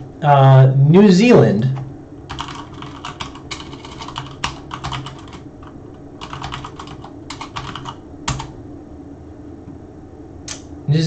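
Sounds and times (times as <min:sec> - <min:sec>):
typing on computer keyboard: 0:02.3 - 0:08.5.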